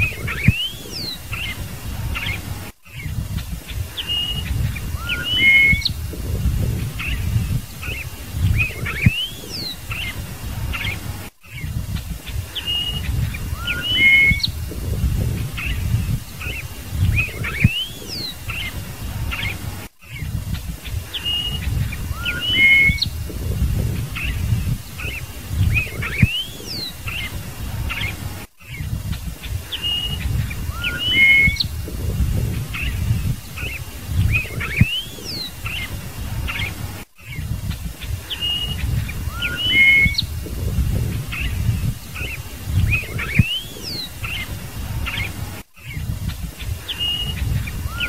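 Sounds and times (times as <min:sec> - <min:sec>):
blackbird singing: 0:00.0 - 0:46.2, 0:46.8 - 0:48.0
low rumble: 0:05.9 - 0:07.8, 0:14.5 - 0:17.7, 0:23.1 - 0:26.3, 0:31.6 - 0:33.5, 0:40.2 - 0:42.0.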